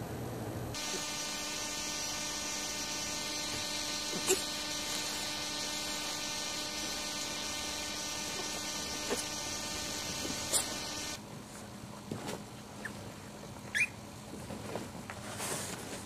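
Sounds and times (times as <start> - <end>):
steady electrical buzz: 0.7 - 11.4.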